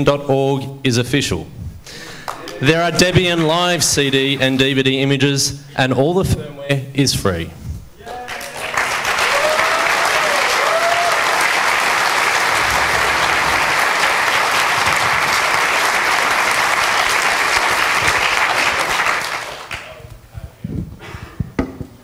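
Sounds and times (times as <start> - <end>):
audience applauding: 2.2 - 4.8, 8.0 - 20.1.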